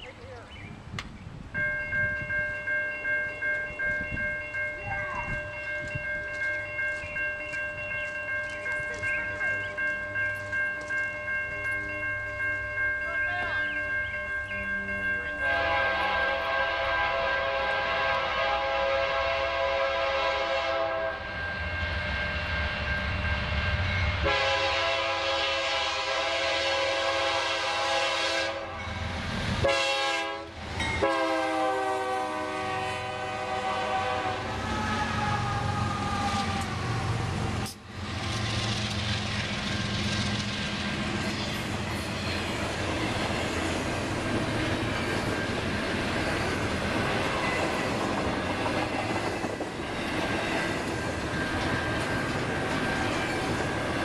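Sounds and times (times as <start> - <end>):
train wheels rumbling on rail: 0.0 - 54.0
locomotive air horn blasts: 15.4 - 22.6, 24.2 - 28.8, 29.6 - 36.6.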